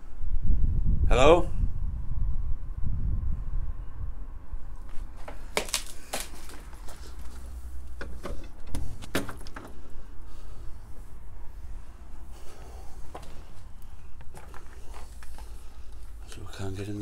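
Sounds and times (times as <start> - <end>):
steady low rumble: 0.0 - 8.0, 9.8 - 17.0
footsteps on debris: 4.8 - 7.6, 13.1 - 16.2
sharp knocks and clatters: 8.0 - 9.8.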